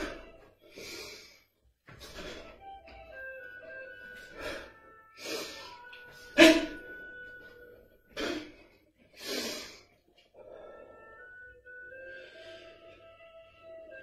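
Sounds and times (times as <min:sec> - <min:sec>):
sharp forceful breaths: 0:00.0 - 0:02.6, 0:04.2 - 0:06.8, 0:08.1 - 0:11.4, 0:12.0 - 0:13.3
soft background music: 0:00.0 - 0:14.0.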